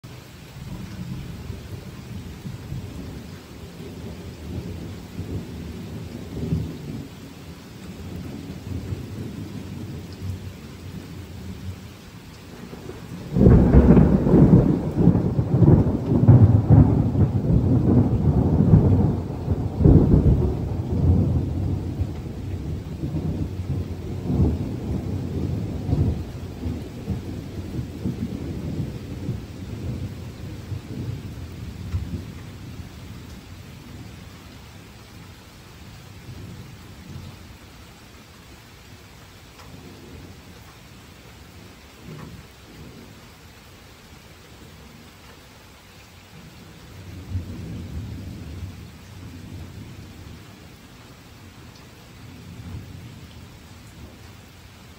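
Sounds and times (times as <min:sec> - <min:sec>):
rain: 0:00.0 - 0:54.9
thunder rumbling: 0:00.7 - 0:07.1, 0:12.5 - 0:34.3, 0:46.4 - 0:50.8
loud thunderclap: 0:12.7 - 0:32.8.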